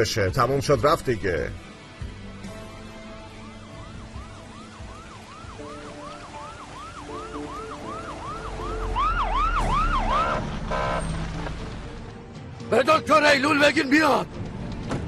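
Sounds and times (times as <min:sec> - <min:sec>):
ambulance siren yelping: 0:03.3 - 0:10.4.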